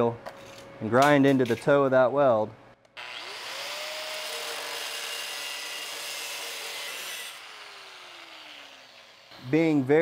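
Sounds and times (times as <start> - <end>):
grinder motor winding down: 3.0 - 9.9
angle grinder grinding steel: 3.0 - 10.0.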